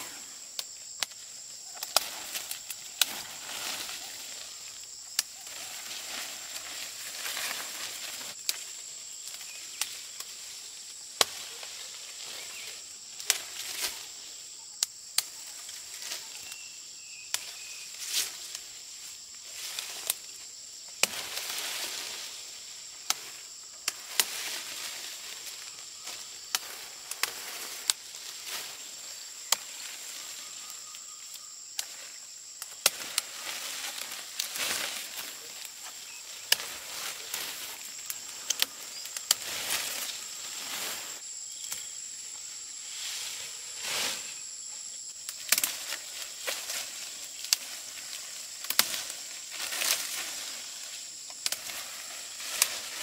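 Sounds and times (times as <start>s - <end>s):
high-pitched insect drone: 0.0s - 53.0s
rustling: 1.7s - 8.7s, 32.8s - 41.2s.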